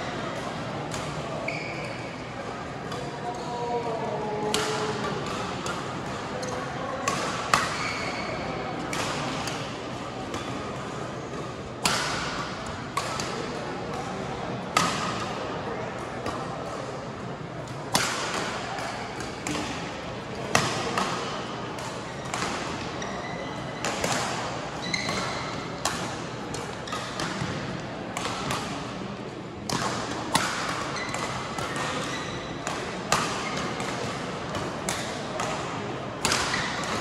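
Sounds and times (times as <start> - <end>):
murmur of voices: 0.0 - 37.0
racket hitting shuttlecock: 4.4 - 8.2, 8.8 - 10.6, 11.8 - 14.1, 17.7 - 23.2, 23.8 - 29.0, 29.6 - 37.0.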